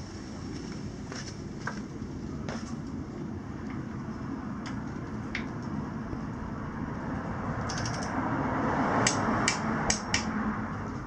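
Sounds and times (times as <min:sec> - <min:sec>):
torque wrench clicking: 0:07.7 - 0:08.1.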